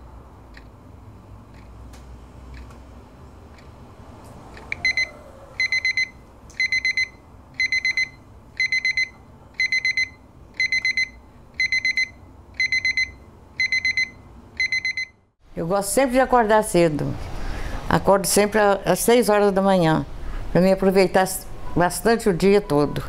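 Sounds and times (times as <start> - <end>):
alarm clock beeping: 4.8 - 15.2.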